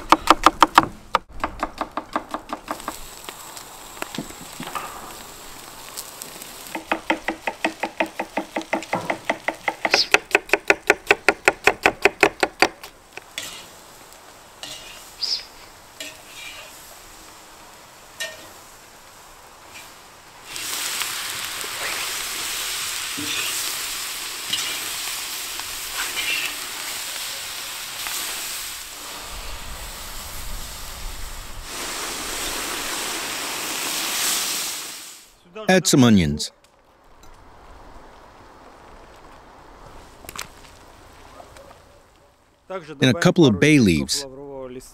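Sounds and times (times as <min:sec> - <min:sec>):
loud sizzling hiss: 0:02.5 - 0:11.1, 0:12.8 - 0:36.4
scraping in a cast-iron pot: 0:13.3 - 0:13.9, 0:14.6 - 0:15.4, 0:16.0 - 0:16.9, 0:18.2 - 0:18.6, 0:23.1 - 0:25.2, 0:25.8 - 0:27.0.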